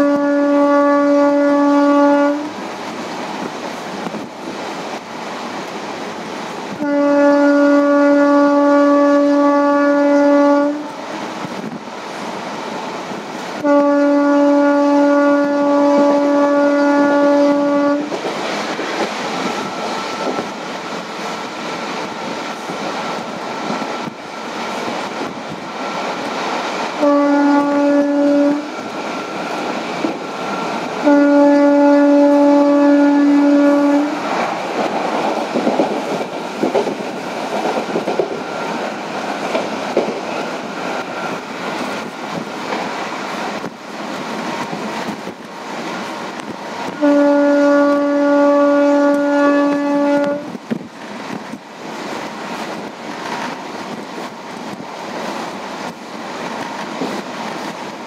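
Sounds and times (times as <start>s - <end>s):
locomotive horn blasts: 0.0s - 2.5s, 6.8s - 11.0s, 13.6s - 18.2s, 27.0s - 28.7s, 31.0s - 34.2s, 46.9s - 50.6s
train coaches clattering over rails: 14.4s - 58.0s.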